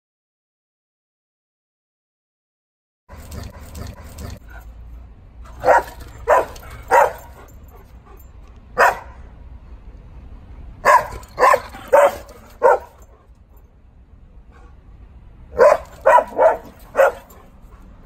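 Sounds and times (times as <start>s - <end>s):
dog barking: 5.5s - 7.6s, 8.8s - 9.3s, 10.8s - 13.1s, 15.5s - 17.5s.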